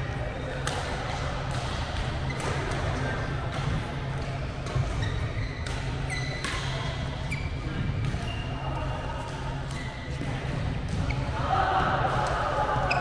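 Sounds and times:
shoes squeaking on court floor: 2.2 - 2.8, 4.0 - 11.3
racket striking shuttlecock: 5.6 - 6.9.

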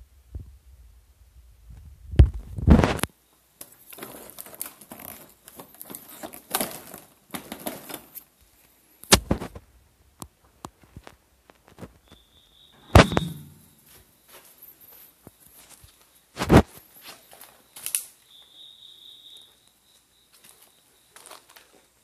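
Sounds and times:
crackling plastic rustle: 2.2 - 9.7, 10.4 - 12.2, 20.3 - 22.0
sharp click: 12.8 - 13.8
heavy thumps: 12.8 - 14.0.

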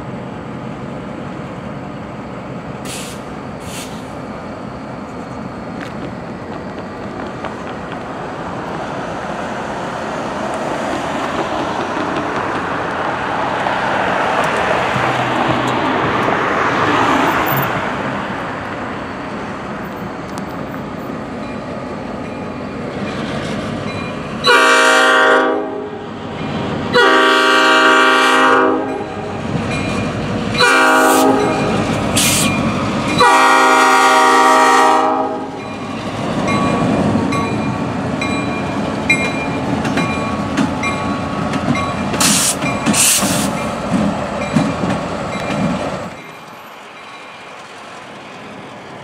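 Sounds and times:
diesel locomotive engine: 0.0 - 49.0
locomotive horn blasts: 24.4 - 26.0, 26.9 - 29.2, 30.6 - 32.5, 33.2 - 35.6
crossing bell dinging: 28.8 - 33.4, 35.5 - 43.0
wheels clicking over rail joints: 36.4 - 46.7.

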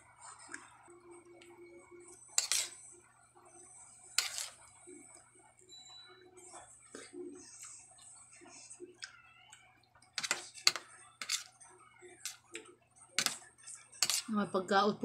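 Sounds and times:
metal spoon clinking on plate: 2.4 - 2.8, 4.2 - 4.6, 10.2 - 11.5, 13.2 - 13.4, 14.0 - 14.3.

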